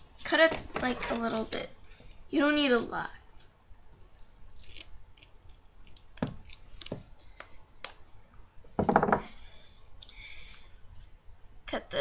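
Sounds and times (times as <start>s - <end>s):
knock on desk: 8.8s - 9.3s.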